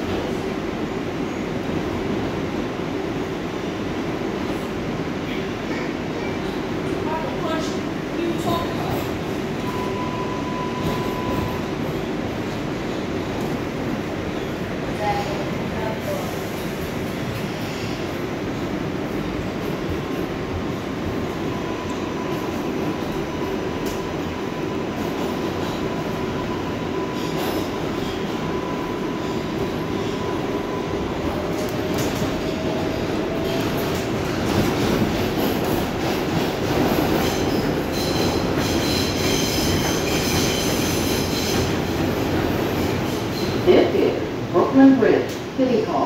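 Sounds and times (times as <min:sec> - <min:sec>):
rumble of wheels on rail: 0:00.0 - 0:46.0
wheels squealing on rails: 0:08.4 - 0:13.0, 0:21.3 - 0:43.7.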